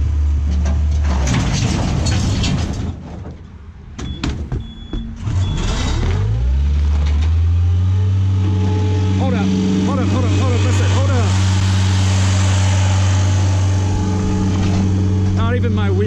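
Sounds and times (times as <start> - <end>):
diesel engine under load: 0.0 - 16.0
knocks: 4.0 - 5.2.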